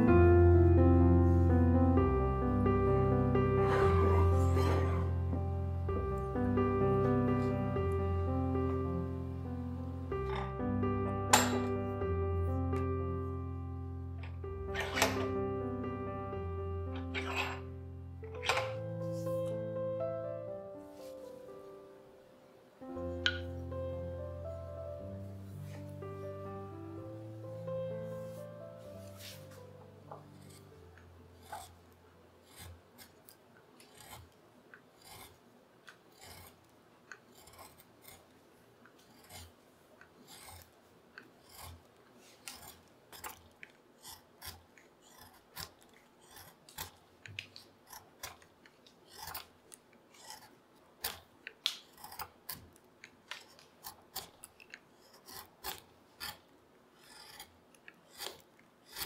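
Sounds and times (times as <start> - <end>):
carving gouge scraping wood: 30.1 - 59.0.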